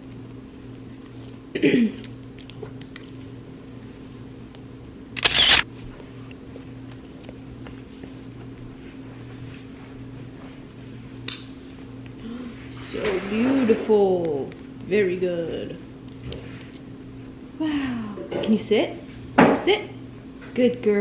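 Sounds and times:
low room hum: 0.0 - 21.0
sharp click: 5.2 - 5.6.

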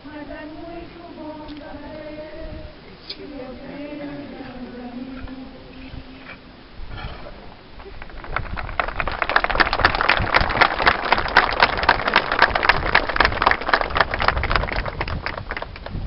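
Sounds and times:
crowd applauding: 7.8 - 16.0.

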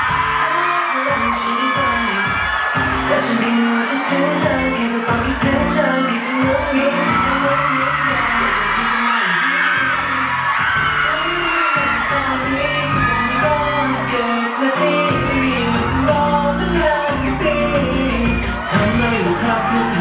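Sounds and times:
pop song vocal: 0.0 - 20.0
bass line: 2.8 - 3.4, 4.2 - 9.1, 9.8 - 14.3, 15.0 - 20.0.

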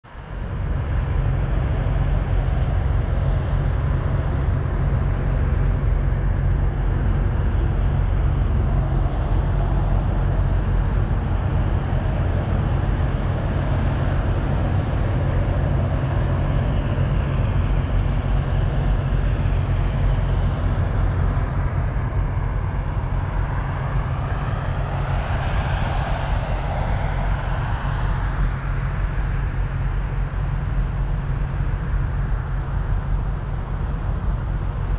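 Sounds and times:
faint rising and falling whines: 0.1 - 34.9
diesel truck engine drone: 0.2 - 34.9
road noise: 21.3 - 30.6.

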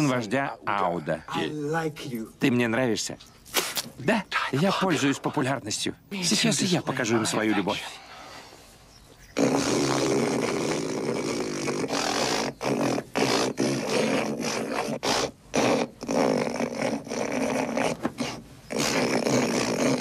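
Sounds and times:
man hawking up phlegm: 9.3 - 20.0.

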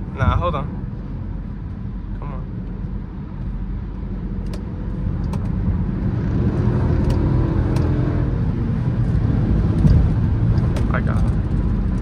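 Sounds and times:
car engine accelerating: 4.4 - 12.0.

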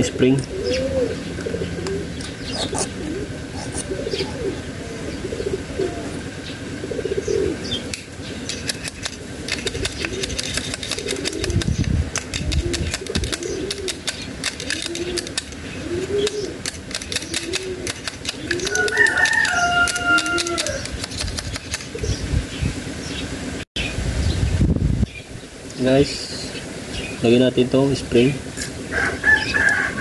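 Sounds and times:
doves cooing: 0.0 - 23.4, 28.7 - 30.0.

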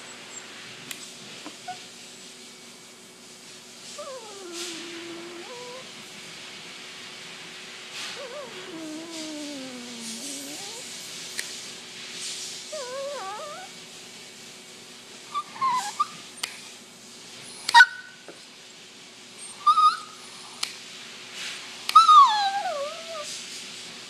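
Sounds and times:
small dog whining: 1.4 - 1.9, 3.9 - 5.9, 8.1 - 10.9, 12.7 - 13.8, 15.3 - 16.3, 19.4 - 20.2, 21.9 - 23.3.

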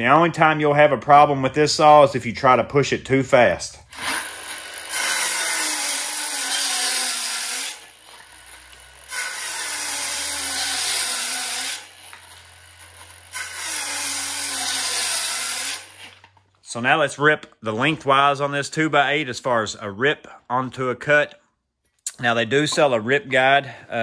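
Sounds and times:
circular saw cutting wood: 3.9 - 16.3.

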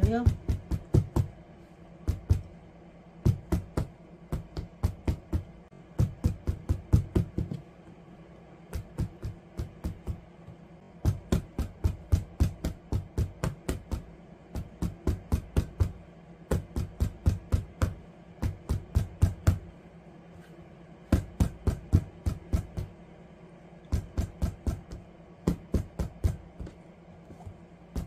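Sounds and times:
pestle pounding on wooden board: 0.0 - 1.4, 2.0 - 2.5, 3.2 - 7.6, 8.6 - 10.2, 11.0 - 19.7, 21.1 - 22.9, 23.9 - 26.7.

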